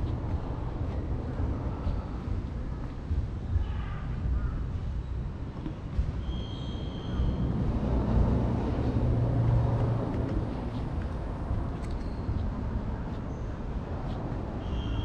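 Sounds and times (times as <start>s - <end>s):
vehicle engine rumble passing: 6.9s - 14.6s.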